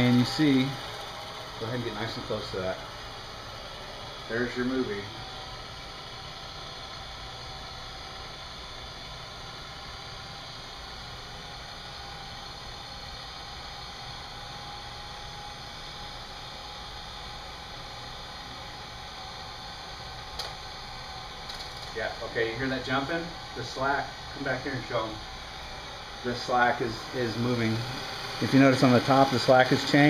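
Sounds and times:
film projector whirring: 0:00.0 - 0:30.0
projector click: 0:20.3 - 0:20.6.

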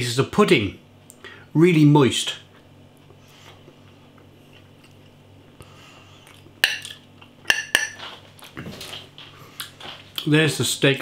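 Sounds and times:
cutlery clinking against plate: 0:06.6 - 0:08.2
faint chewing: 0:08.1 - 0:10.3.

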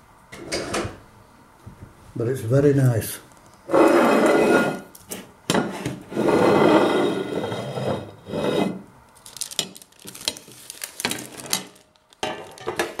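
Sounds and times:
metal tray scraping on worktop: 0:03.7 - 0:04.9, 0:05.5 - 0:08.8
paper rustling: 0:09.2 - 0:13.0.

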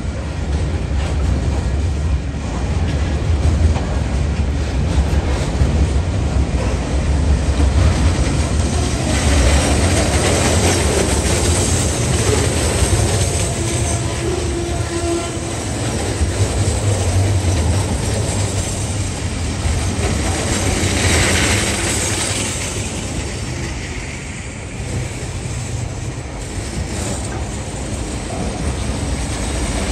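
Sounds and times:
train wheels rumbling: 0:00.0 - 0:29.9
wheels clicking over rail joints: 0:00.4 - 0:23.7.

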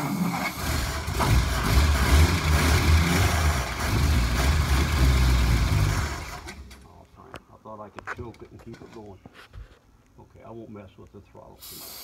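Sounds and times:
car engine running unsteadily: 0:00.5 - 0:06.5.

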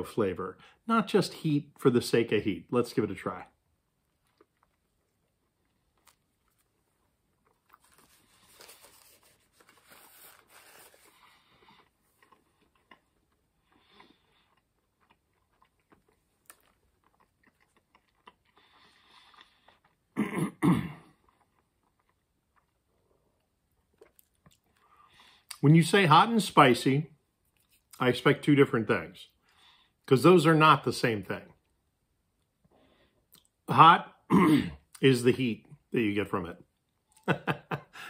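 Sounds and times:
person chewing: 0:04.0 - 0:20.3, 0:21.0 - 0:25.6
person coughing: 0:20.2 - 0:21.1, 0:34.3 - 0:34.9.

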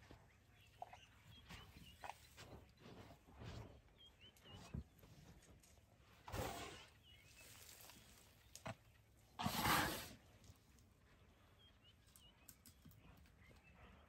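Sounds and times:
elephant blowing sand whoosh: 0:09.4 - 0:10.2.

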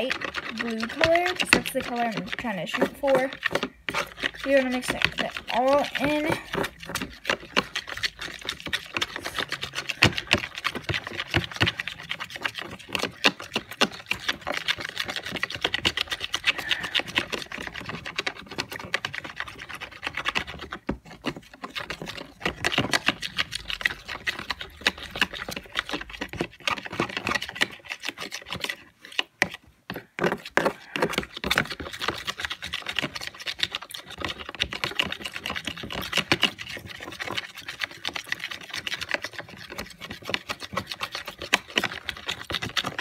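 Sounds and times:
utensil stirring mixture in bowl: 0:00.0 - 0:43.0.

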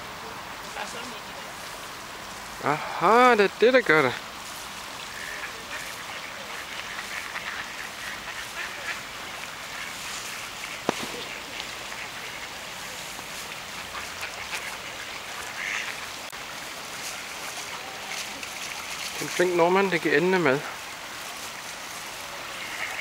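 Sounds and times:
river rushing: 0:00.0 - 0:23.0
ducks quacking: 0:05.0 - 0:16.4, 0:22.4 - 0:23.0.

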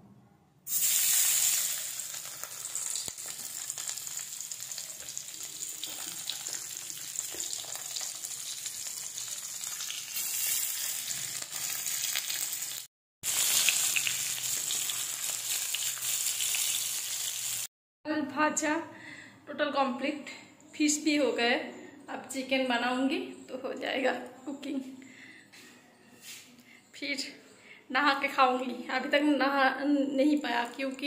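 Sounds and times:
fish frying in hot oil: 0:00.7 - 0:17.7
oil sizzling and spattering: 0:00.7 - 0:17.7.

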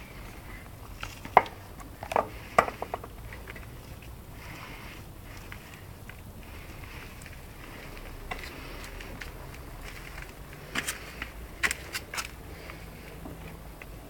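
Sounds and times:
faint outdoor background: 0:00.0 - 0:14.0.

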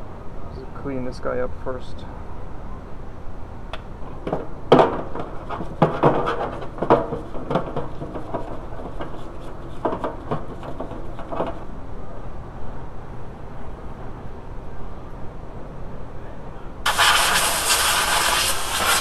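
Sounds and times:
metal bracket knocking and clattering: 0:04.2 - 0:11.6
brush scrubbing metal: 0:05.2 - 0:11.6, 0:16.9 - 0:19.0.

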